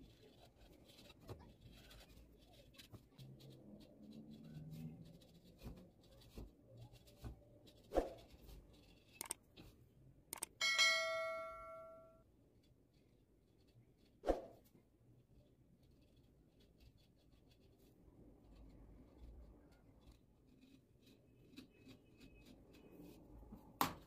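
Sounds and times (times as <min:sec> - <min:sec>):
bell-like ding: 0:10.6 - 0:12.2
screwdriver scraping hard ball: 0:15.8 - 0:23.3.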